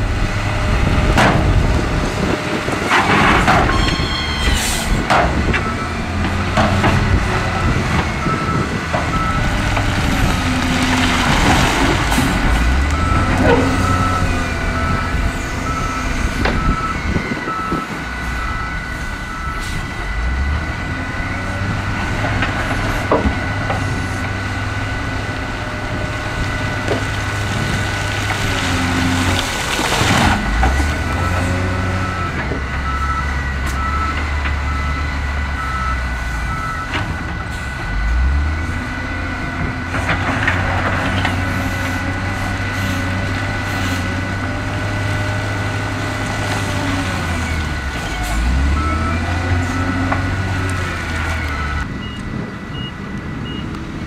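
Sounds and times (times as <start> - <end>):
diesel engine working: 0.0 - 54.0
reversing alarm beeping: 3.6 - 6.2, 7.5 - 10.4, 12.8 - 21.7, 31.0 - 38.7, 48.4 - 50.4, 51.4 - 53.8.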